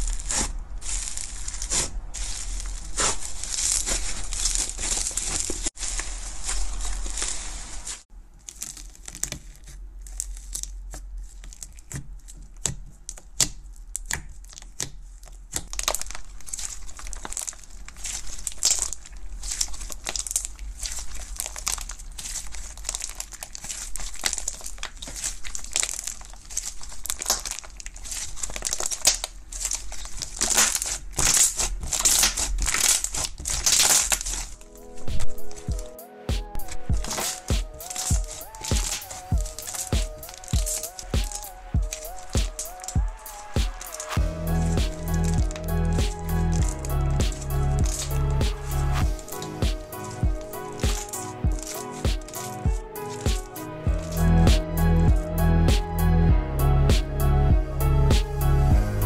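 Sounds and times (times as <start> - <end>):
slime crackling and popping: 0.0 - 54.6.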